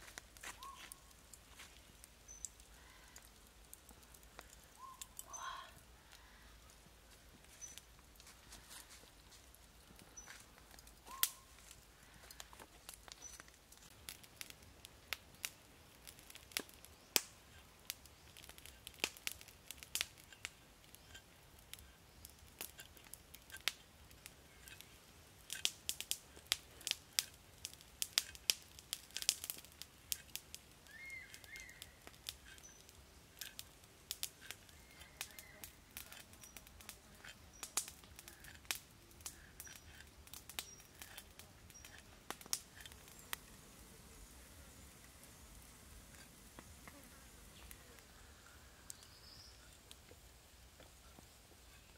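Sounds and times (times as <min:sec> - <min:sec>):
faint bird chirps: 0:00.5 - 0:01.1, 0:02.2 - 0:03.3, 0:04.7 - 0:06.7, 0:11.0 - 0:12.2, 0:30.8 - 0:33.0, 0:34.6 - 0:36.7, 0:47.5 - 0:49.8.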